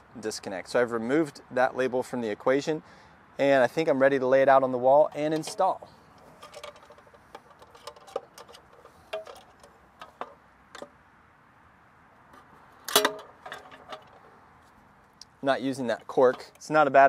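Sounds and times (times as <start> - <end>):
metal clank ringing: 12.9 - 14.2.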